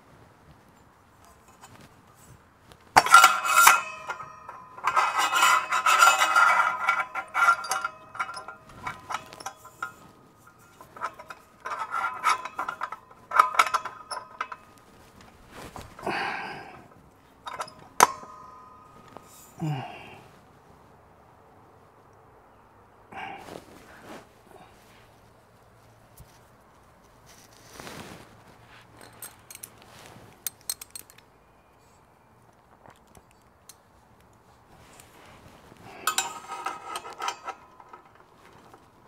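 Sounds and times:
metal tools clinking and clanking: 3.0 - 20.2, 28.9 - 32.0, 34.8 - 39.0.

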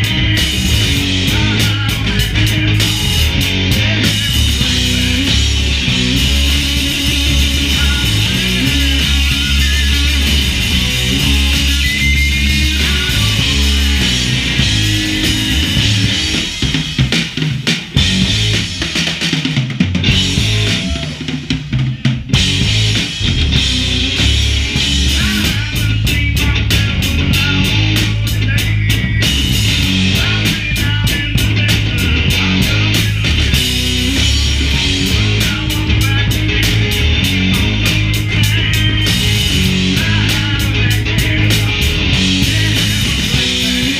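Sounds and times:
drum hits: 0.0 - 27.5
live rock band playing: 0.0 - 43.9.

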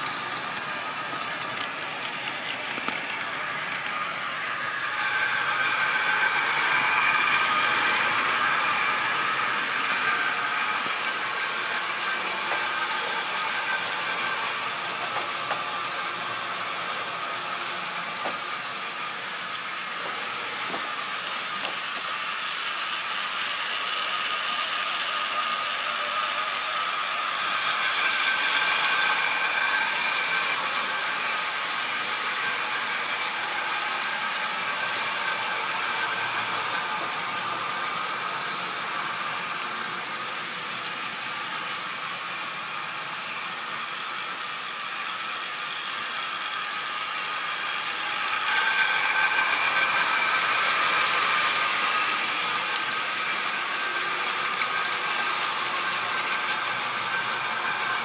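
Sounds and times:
wheels rattling on rails: 0.0 - 24.2
model train motor whine: 0.0 - 58.0.

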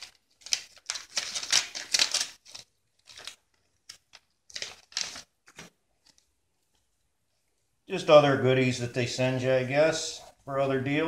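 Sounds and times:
paper envelope rustling: 0.0 - 6.9.

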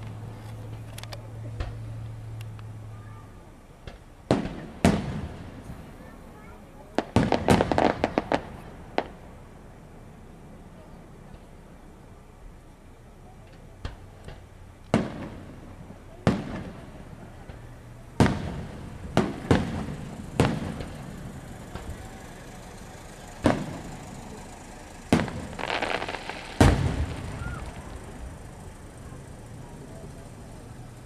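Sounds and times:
firework shells booming with echo: 3.8 - 6.2, 6.9 - 9.4, 13.6 - 31.0.

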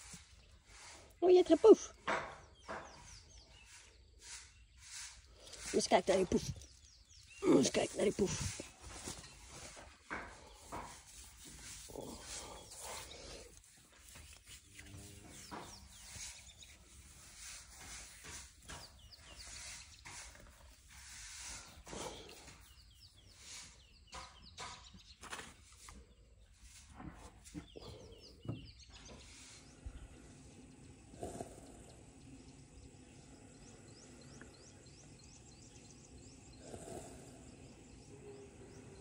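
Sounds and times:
birds chirping: 0.0 - 39.0
hand rubbing rough skin: 3.6 - 23.8.

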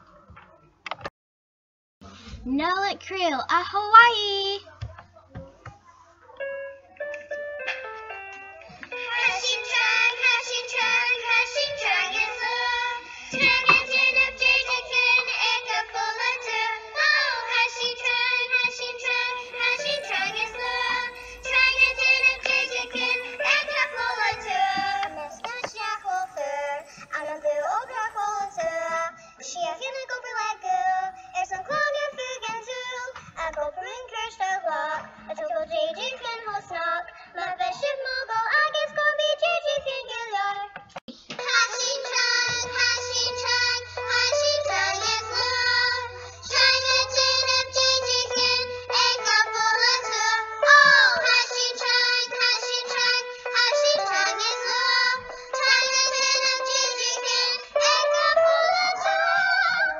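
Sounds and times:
musical accompaniment: 6.4 - 29.4, 41.3 - 59.9
children singing: 8.9 - 33.1, 41.4 - 59.9.

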